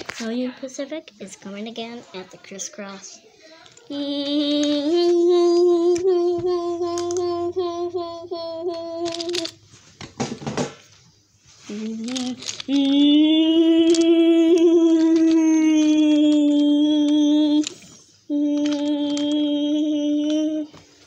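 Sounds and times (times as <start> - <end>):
toy trains clicking on wooden track: 3.7 - 7.5, 8.6 - 9.6, 11.8 - 20.6
child humming held notes: 3.9 - 9.6, 11.6 - 21.0.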